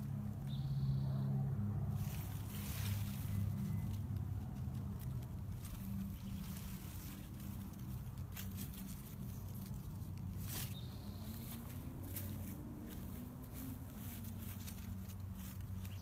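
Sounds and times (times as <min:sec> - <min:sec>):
low steady hum: 0:00.0 - 0:16.0
leaves rustling: 0:01.7 - 0:16.0.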